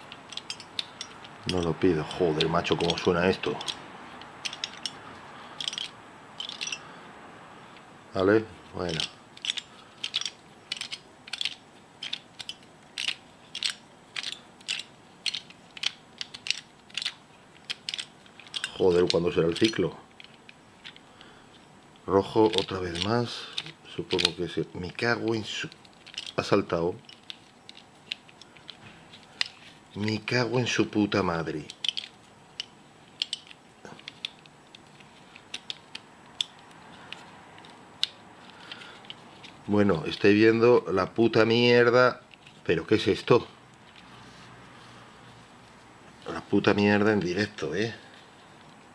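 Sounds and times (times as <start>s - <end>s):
plastic puzzle gears clicking: 0.0s - 5.0s, 5.6s - 6.8s, 8.9s - 21.3s, 21.9s - 30.3s, 31.6s - 40.2s.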